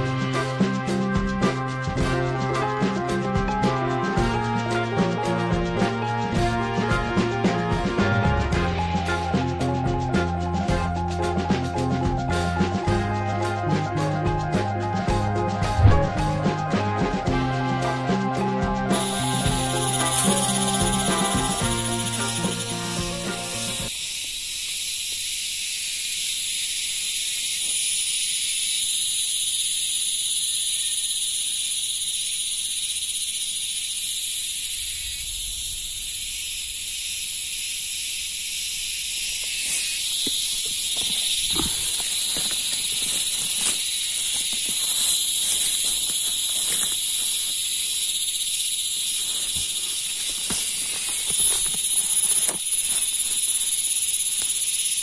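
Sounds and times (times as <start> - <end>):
insects chirring and buzzing: 0.0 - 16.5, 17.2 - 55.0
knocks and rustles in grass: 39.3 - 48.1, 48.8 - 53.8.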